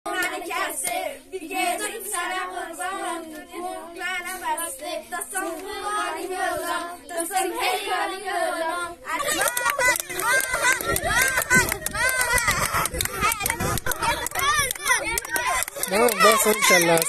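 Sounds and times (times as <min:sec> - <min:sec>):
girls singing unaccompanied: 0:00.1 - 0:17.0.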